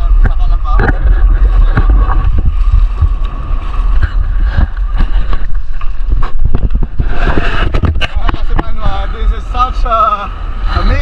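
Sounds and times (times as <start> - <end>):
wind buffeting microphone: 0.0 - 11.0
knocks and splashes against hull: 0.1 - 8.8.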